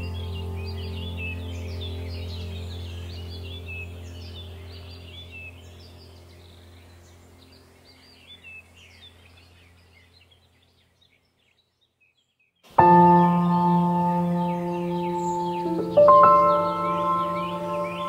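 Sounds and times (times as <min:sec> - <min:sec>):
steady low hum: 0:00.0 - 0:10.6
birds chirping: 0:00.0 - 0:18.0.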